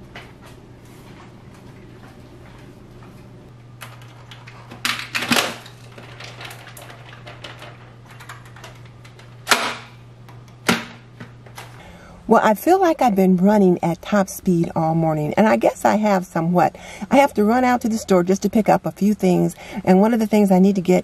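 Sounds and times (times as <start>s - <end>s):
steady low hum: 0.0s - 21.0s
clicks and knocks of objects: 3.8s - 11.8s.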